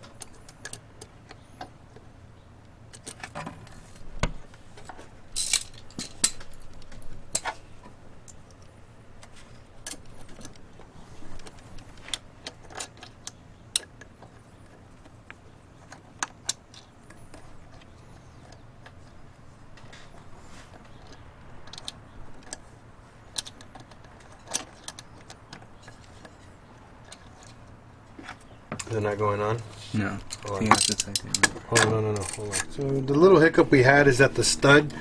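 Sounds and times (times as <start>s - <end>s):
small metal parts clinking: 4.8s - 7.6s, 30.2s - 32.9s.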